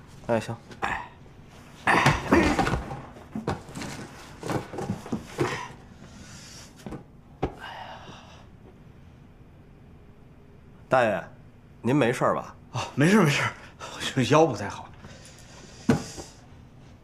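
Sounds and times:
cardboard boxes scraping and thudding: 0:02.5 - 0:05.8.

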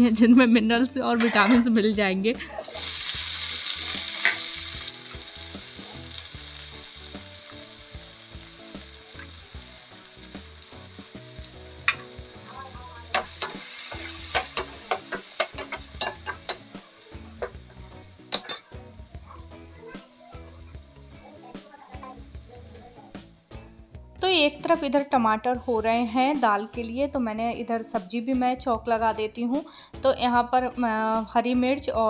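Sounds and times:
tomatoes sizzling in hot oil: 0:01.1 - 0:23.9.

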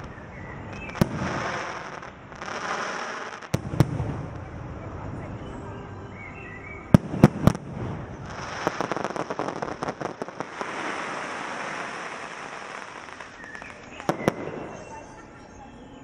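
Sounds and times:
fireworks crackling pops: 0:00.0 - 0:04.6, 0:06.9 - 0:15.0
fireworks hiss: 0:00.0 - 0:04.6, 0:06.9 - 0:15.3
fireworks bangs: 0:00.0 - 0:06.3, 0:06.9 - 0:15.6.

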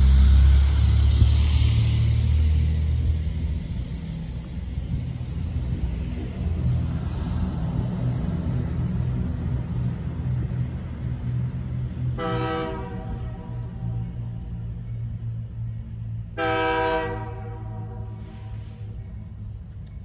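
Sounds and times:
diesel locomotive rumble: 0:00.0 - 0:20.0
locomotive air horn: 0:12.2 - 0:13.6, 0:16.4 - 0:19.0.

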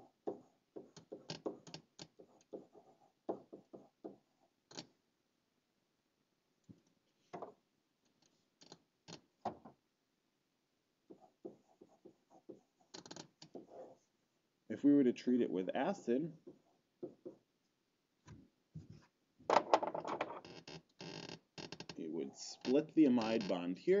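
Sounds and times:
pen stylus tapping on tablet: 0:00.2 - 0:04.2, 0:11.1 - 0:13.7, 0:16.4 - 0:17.4.

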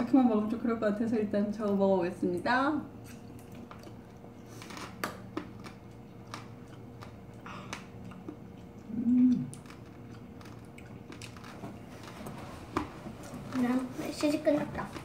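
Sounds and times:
close chewing crunches: 0:03.0 - 0:12.2.

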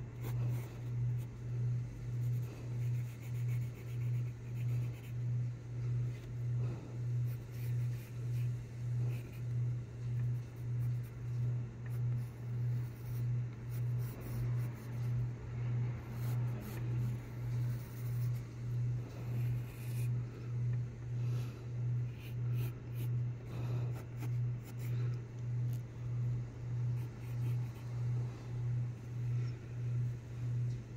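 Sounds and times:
low throbbing hum: 0:00.0 - 0:30.9
pencil scratching on paper: 0:00.2 - 0:01.3, 0:02.1 - 0:05.3, 0:06.6 - 0:15.2, 0:16.0 - 0:18.5, 0:19.1 - 0:20.2, 0:22.0 - 0:25.0, 0:27.0 - 0:27.8.

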